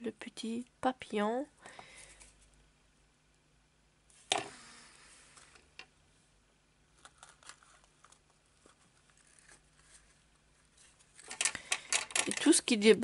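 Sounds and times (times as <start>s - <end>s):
paper rustling: 7.0s - 12.6s.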